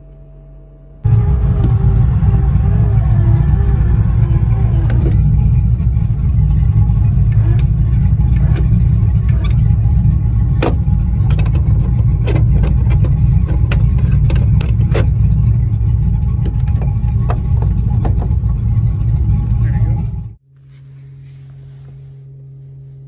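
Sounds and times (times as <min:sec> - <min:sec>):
low motor rumble: 0:00.0 - 0:23.0
metal caps clicking shut: 0:10.6 - 0:15.1.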